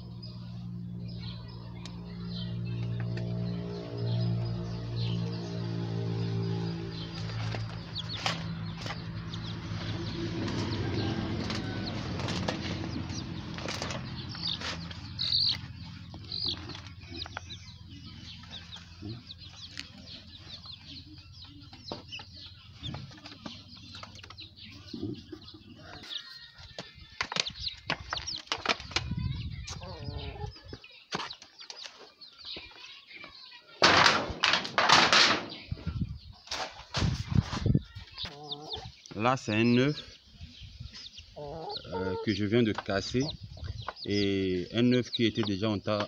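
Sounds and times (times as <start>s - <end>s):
chickens clucking: 0.0s - 46.0s
chicks peeping: 0.0s - 46.0s
rustling and flapping: 9.8s - 17.4s, 33.8s - 38.2s.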